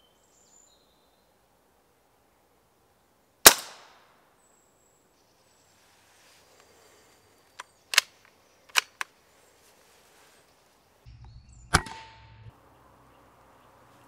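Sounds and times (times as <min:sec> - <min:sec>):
air rifle shot crack: 0:03.4 - 0:04.0, 0:11.7 - 0:12.4
low hum: 0:11.1 - 0:12.9.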